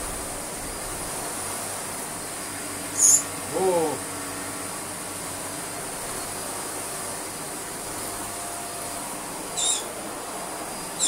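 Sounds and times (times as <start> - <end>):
bird chirping: 3.0 - 3.3, 9.6 - 9.9.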